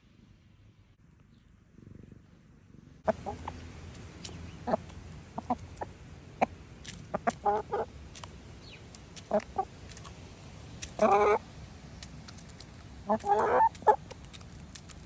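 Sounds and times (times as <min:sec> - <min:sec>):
chickens clucking: 0:03.1 - 0:15.0.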